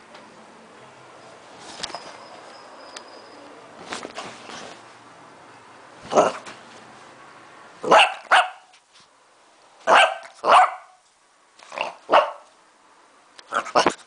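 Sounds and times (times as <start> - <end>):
dog barking: 7.8 - 8.7, 9.9 - 11.0, 12.1 - 12.5.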